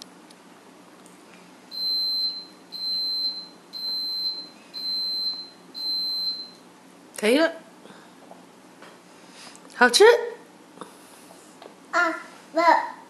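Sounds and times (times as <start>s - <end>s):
timer beeping: 1.8s - 6.6s.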